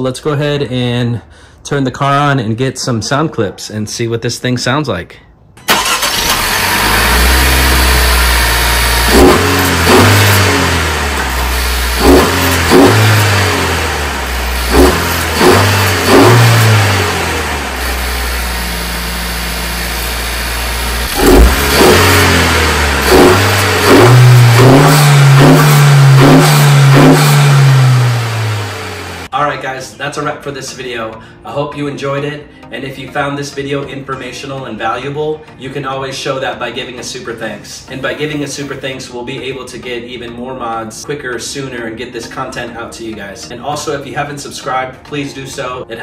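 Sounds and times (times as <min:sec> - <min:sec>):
car engine idling and revving: 0:06.1 - 0:29.3.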